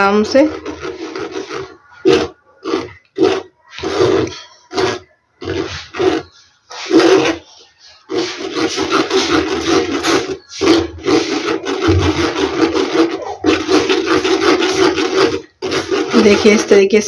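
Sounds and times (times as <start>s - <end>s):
spoon scraping a mesh strainer: 0.0s - 17.0s.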